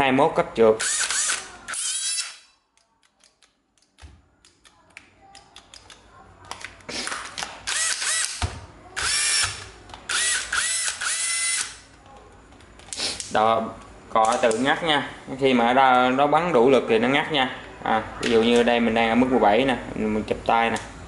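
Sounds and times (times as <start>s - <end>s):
cordless drill motor whine: 10.1s - 11.7s.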